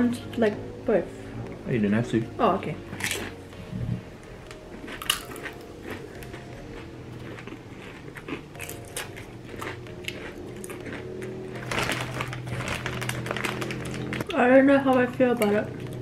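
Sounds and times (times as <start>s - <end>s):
corn chips crunching being chewed: 2.9s - 3.4s, 4.4s - 14.3s, 15.4s - 16.0s.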